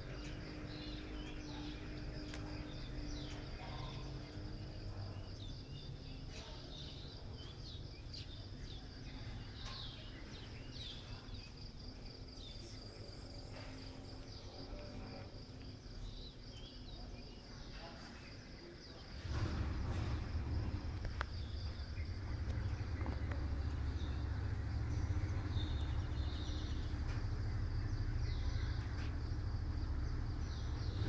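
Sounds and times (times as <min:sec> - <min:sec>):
bird chirps: 0:00.0 - 0:31.0
high insect trill: 0:00.0 - 0:31.0
low background rumble: 0:19.2 - 0:31.0.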